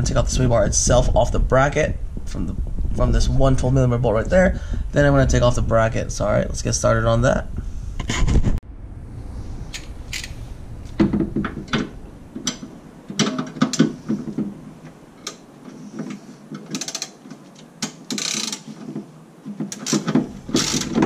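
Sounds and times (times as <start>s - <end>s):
hand ratchet clicking: 16.1s - 18.7s, 19.7s - 21.0s.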